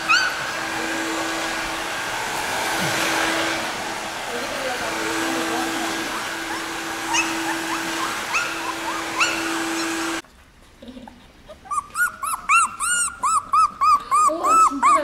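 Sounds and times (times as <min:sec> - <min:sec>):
puppy crying with high whines: 0:00.0 - 0:01.5, 0:06.0 - 0:10.2, 0:11.5 - 0:15.0
stick vacuum cleaner humming: 0:00.0 - 0:10.2.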